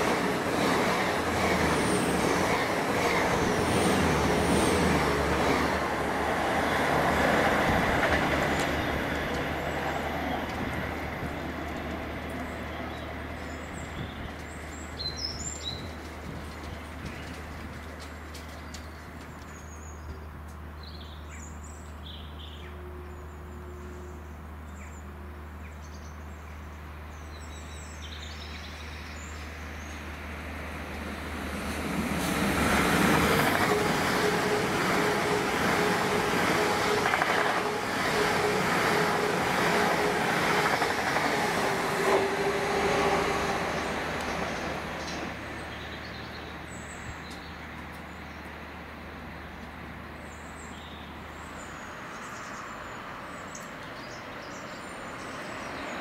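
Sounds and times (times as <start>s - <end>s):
train passing with whine: 0.0s - 19.6s, 28.4s - 56.0s
birds chirping: 32.3s - 48.5s.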